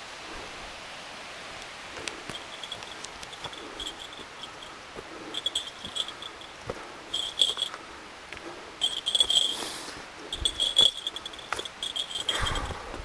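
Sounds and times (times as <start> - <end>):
distant running water: 0.0 - 13.0
light footsteps on a trail: 1.4 - 13.0
high rapid chirping: 2.4 - 7.7, 10.3 - 12.6.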